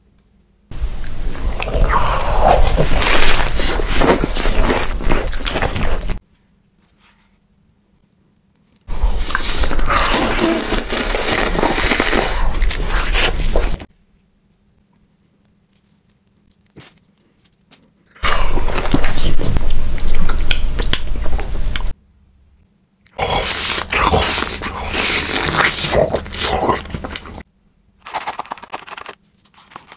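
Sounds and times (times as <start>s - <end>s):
noodles slurped: 1.0s - 6.2s, 8.9s - 13.9s, 23.2s - 27.4s.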